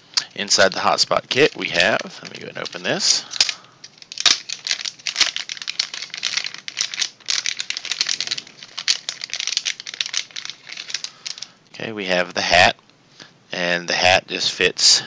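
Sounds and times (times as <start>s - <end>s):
plastic packaging crinkling: 0.2s - 11.6s.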